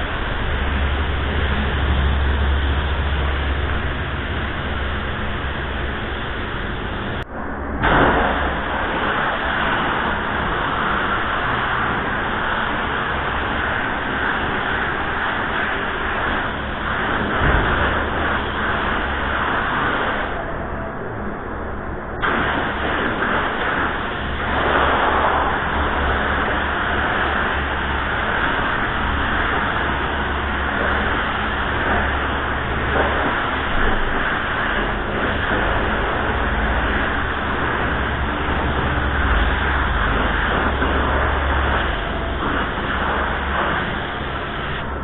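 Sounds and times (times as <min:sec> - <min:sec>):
low rumble: 0:00.0 - 0:45.0
spray gun air hiss: 0:07.8 - 0:20.4, 0:22.2 - 0:45.0.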